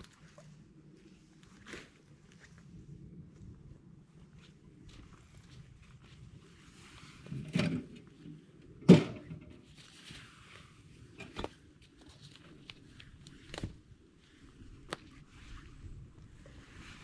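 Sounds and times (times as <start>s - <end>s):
metal stove knocks and clunks: 8.8s - 9.4s.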